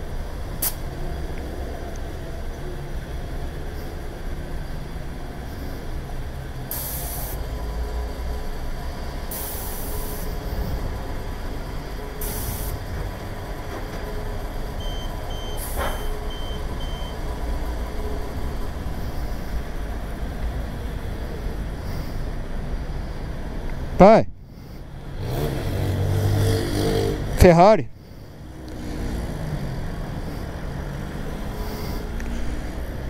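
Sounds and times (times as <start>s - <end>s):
low traffic rumble: 0.0s - 33.0s
short hisses: 0.6s - 0.8s, 9.3s - 10.4s, 12.2s - 12.8s
short beeps: 14.8s - 17.2s.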